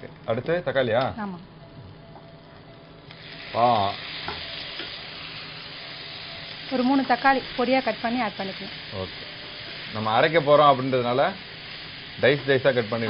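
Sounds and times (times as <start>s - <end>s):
vegetables sizzling in a frying pan: 3.0s - 13.0s.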